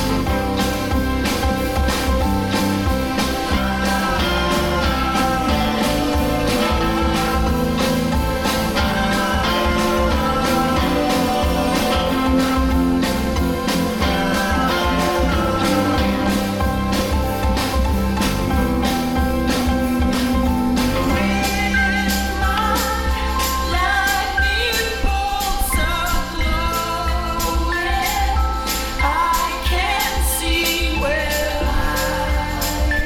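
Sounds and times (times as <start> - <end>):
song with a steady beat: 0.0 - 33.0.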